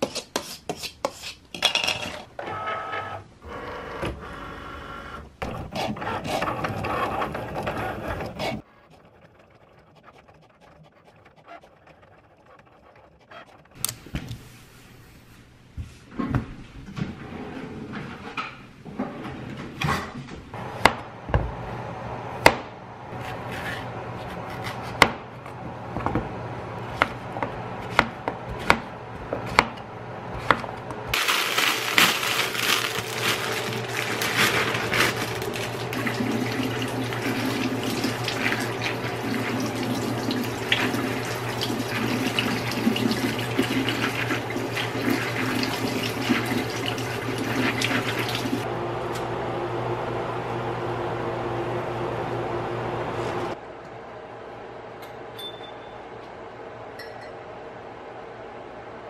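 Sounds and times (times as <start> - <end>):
knife chopping on cutting board: 26.9 - 29.8
kitchen tap running: 32.9 - 48.6
water splashing in colander: 34.7 - 48.6.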